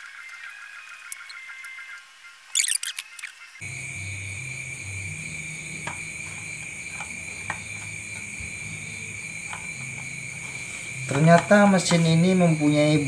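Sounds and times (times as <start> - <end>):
cricket trilling: 0.0 - 13.0.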